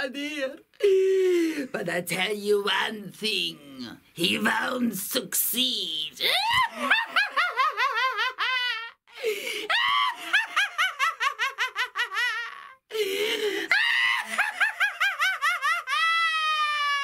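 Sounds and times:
woman breathing: 0.8s - 1.7s, 9.1s - 10.3s, 12.9s - 13.8s.

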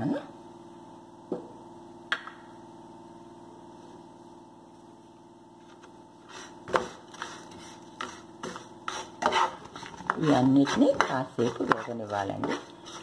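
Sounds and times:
steady hum: 0.0s - 13.0s
spatula scraping strokes: 6.2s - 13.0s
spatula stirring seeds in pan: 6.3s - 13.0s.

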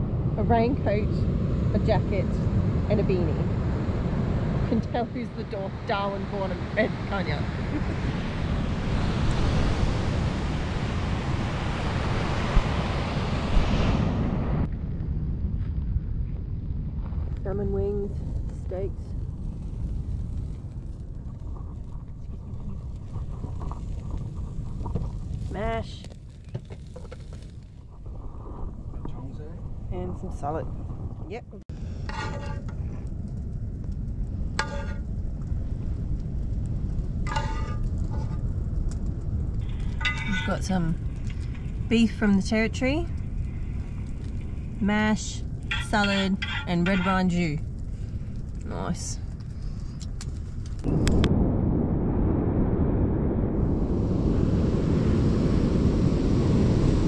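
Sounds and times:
wind buffeting microphone: 0.0s - 57.0s
surf breaking on beach: 5.7s - 14.6s.

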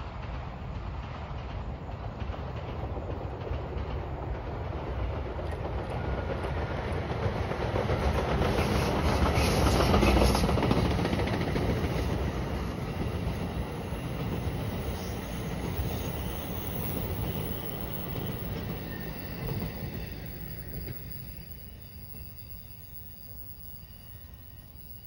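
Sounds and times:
train wheels rushing on rail: 0.0s - 25.0s.

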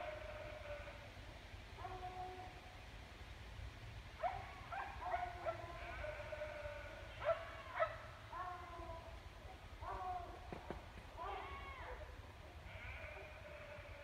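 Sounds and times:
distant dogs barking: 4.2s - 10.5s.

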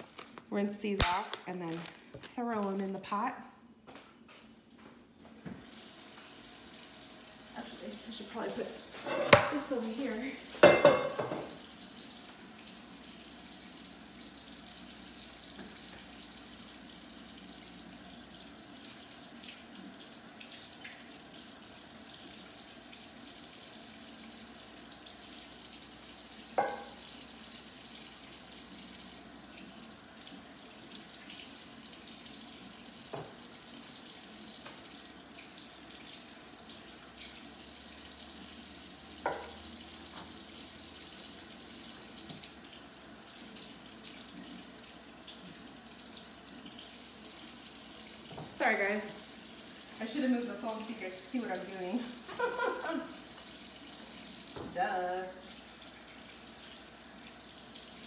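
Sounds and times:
tap running into sink: 26.6s - 27.0s, 33.1s - 33.4s, 39.2s - 40.4s.

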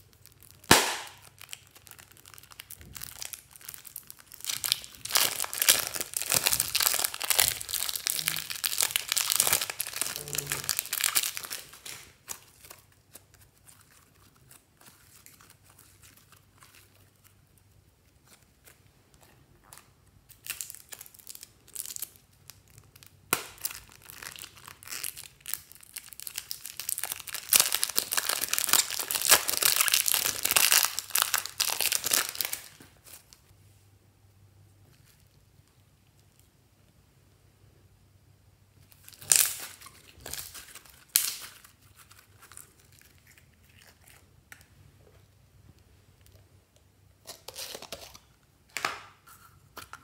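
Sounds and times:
slime crackling off plastic film: 0.0s - 18.8s, 19.6s - 33.4s, 38.9s - 43.3s.

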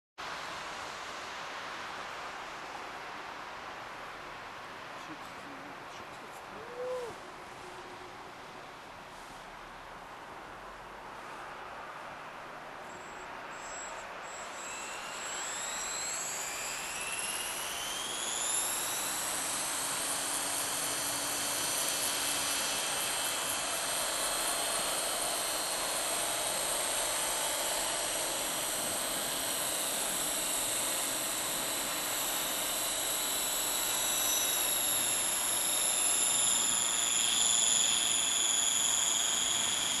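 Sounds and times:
model helicopter whine: 13.5s - 40.0s.

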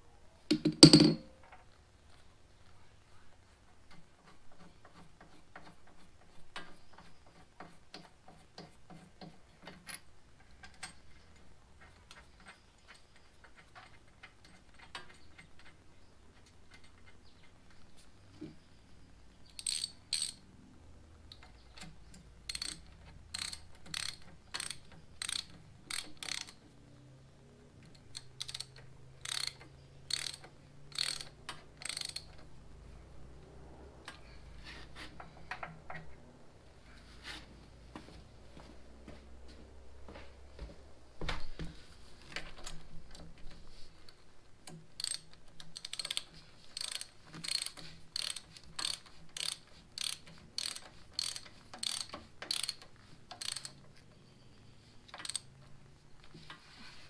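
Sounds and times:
socket ratchet clicking: 19.5s - 20.4s, 21.8s - 26.6s, 27.9s - 32.5s, 45.0s - 54.0s, 55.2s - 55.5s.

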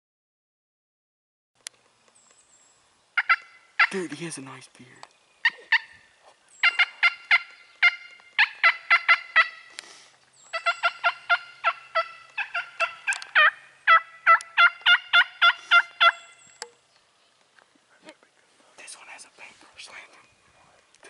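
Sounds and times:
turkey yelping: 3.2s - 4.1s, 5.4s - 6.0s, 6.6s - 9.7s, 10.5s - 16.6s.

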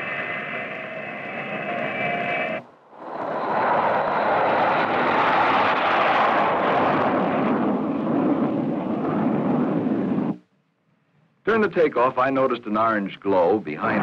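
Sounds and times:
high jet whine: 0.0s - 10.4s
jet engine roar: 0.0s - 10.4s.

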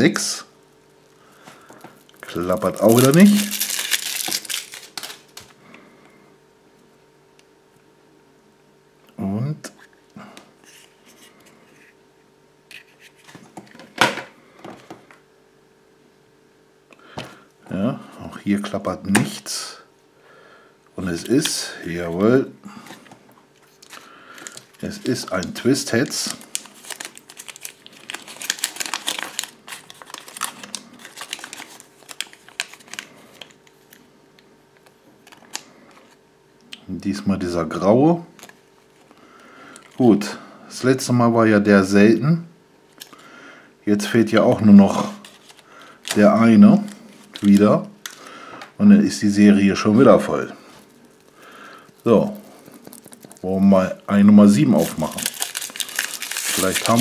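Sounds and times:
paper leaflets crinkling: 1.5s - 5.6s, 22.9s - 34.0s, 34.8s - 36.2s, 45.0s - 48.3s, 50.2s - 57.0s
chocolate shell cracking: 2.0s - 5.5s, 51.1s - 53.5s, 54.9s - 57.0s.

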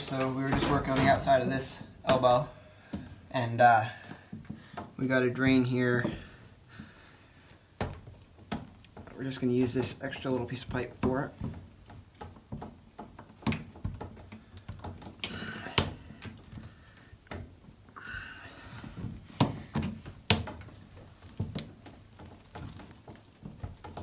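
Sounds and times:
plastic tubing knocks and clicks: 7.8s - 17.9s, 18.8s - 24.0s.

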